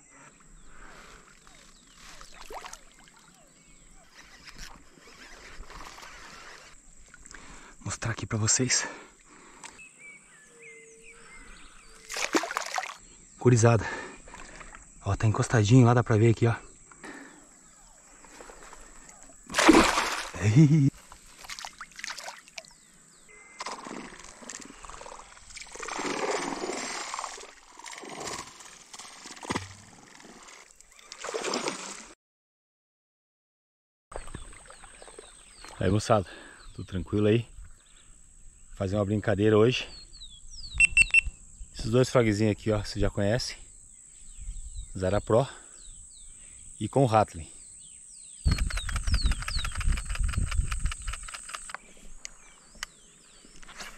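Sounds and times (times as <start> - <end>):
water splashing in pond: 1.1 - 7.4, 11.9 - 13.1, 17.9 - 22.9, 23.5 - 32.2, 34.1 - 35.9
animals chirping: 3.0 - 6.8, 48.4 - 53.7.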